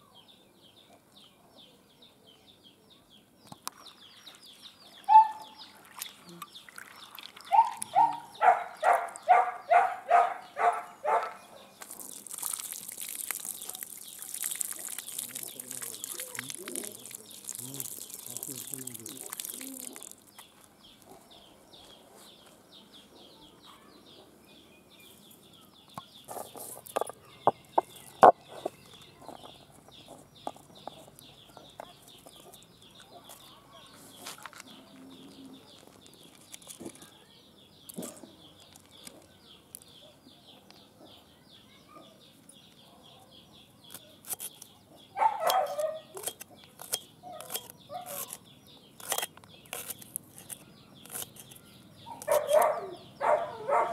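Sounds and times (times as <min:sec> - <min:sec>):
knife cutting against stone: 0:43.9 - 0:44.7, 0:45.5 - 0:52.7.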